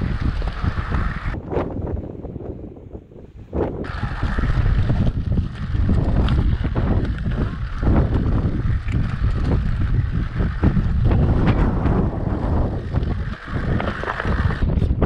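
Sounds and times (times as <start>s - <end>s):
wind buffeting microphone: 0.0s - 15.0s
bike rattling and knocking: 3.8s - 15.0s
tyres crunching on rock: 4.9s - 14.7s.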